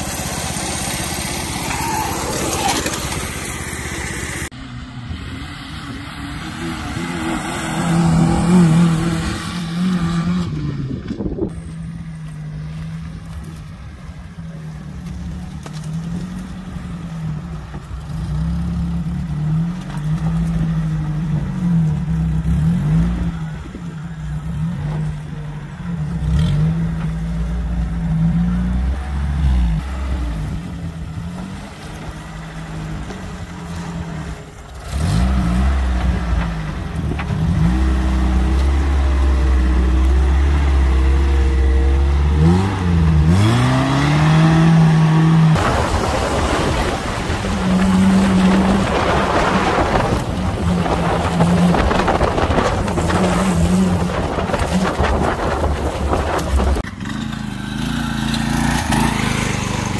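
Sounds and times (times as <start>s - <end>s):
off-road engine revving: 0.0s - 59.9s
wind on microphone: 45.6s - 56.8s.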